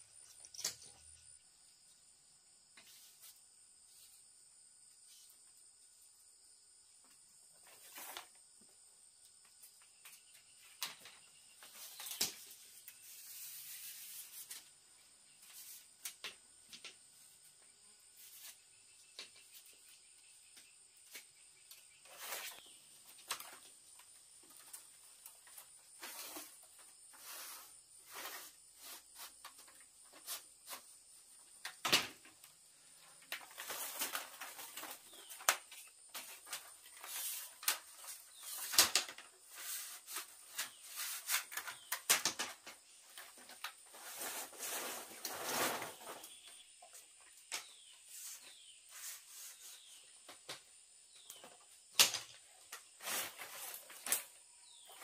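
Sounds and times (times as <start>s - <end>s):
insect drone: 0.0s - 55.0s
rustling: 33.1s - 47.0s, 52.7s - 55.0s.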